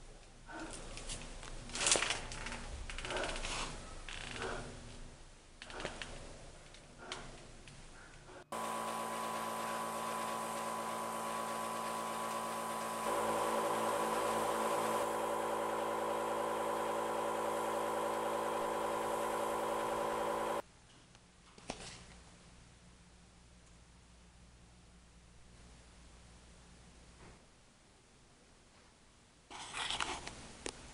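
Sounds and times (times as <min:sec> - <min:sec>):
airbrush compressor humming: 0:08.5 - 0:20.6.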